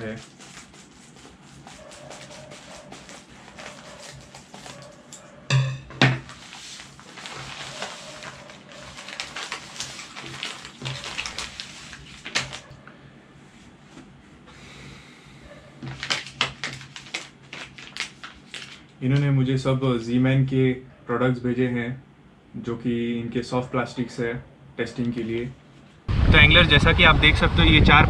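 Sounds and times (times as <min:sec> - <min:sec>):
plastic packaging rustling: 0:00.0 - 0:05.1, 0:06.2 - 0:12.8, 0:15.8 - 0:18.9.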